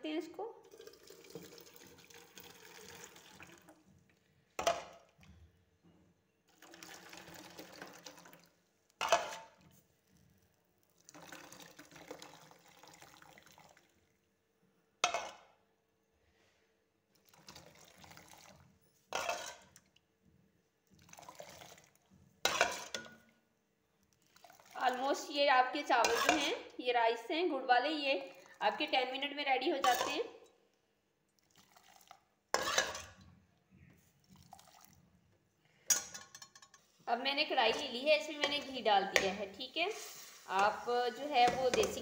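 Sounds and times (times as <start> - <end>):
liquid pouring through strainer: 0.6 - 4.0, 6.5 - 8.6, 10.8 - 14.0, 17.2 - 20.0, 20.9 - 23.2, 24.2 - 25.0, 31.3 - 33.2, 34.2 - 35.0
utensil clanking on metal pan: 26.0 - 26.5, 32.6 - 33.2.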